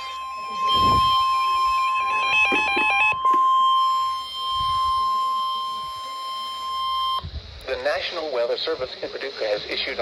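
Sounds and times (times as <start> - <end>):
fast two-tone beeping: 0.0 - 7.2
weather radio alarm tone: 0.0 - 7.2.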